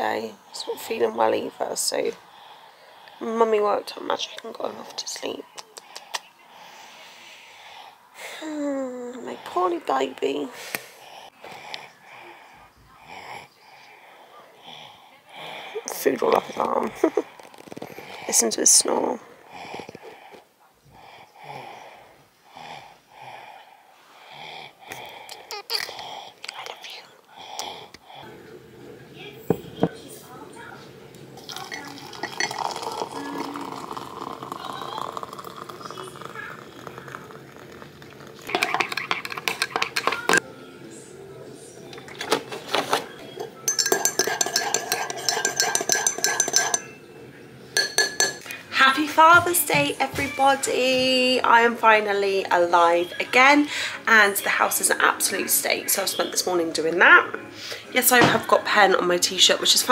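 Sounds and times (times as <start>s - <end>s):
teaspoon clinking in glass mug: 31.5s - 36.3s, 38.5s - 40.4s, 43.3s - 47.0s, 47.8s - 48.5s.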